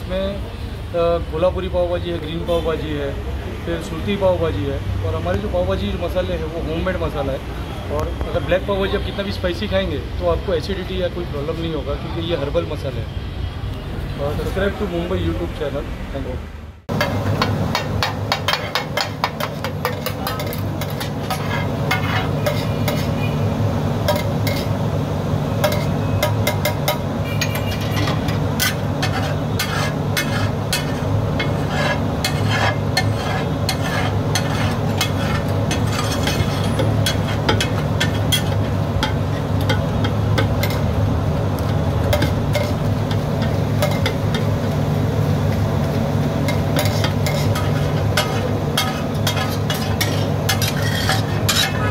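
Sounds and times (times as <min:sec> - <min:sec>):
metal spatula scraping a griddle: 0:16.9 - 0:23.4, 0:24.0 - 0:24.8, 0:25.5 - 0:41.0, 0:41.6 - 0:44.5, 0:46.4 - 0:51.9
food sizzling: 0:16.9 - 0:51.9.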